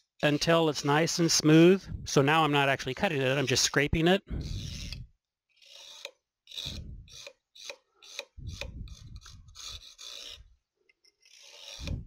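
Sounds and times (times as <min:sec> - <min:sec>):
knife blade scraping circuit board: 0:02.9 - 0:03.8, 0:04.4 - 0:10.5, 0:11.1 - 0:12.0.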